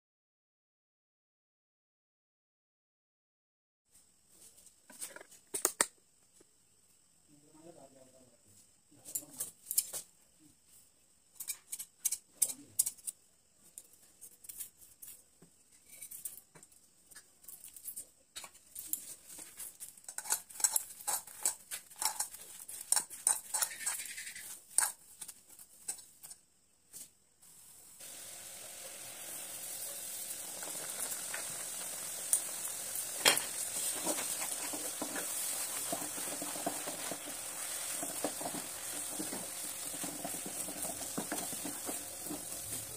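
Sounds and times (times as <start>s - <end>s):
food sizzling in a pan: 19.0s - 25.0s, 27.0s - 42.9s
hands mashing in steel bowl: 20.1s - 24.9s, 33.8s - 42.9s
wooden spatula scraping pan: 33.0s - 42.9s.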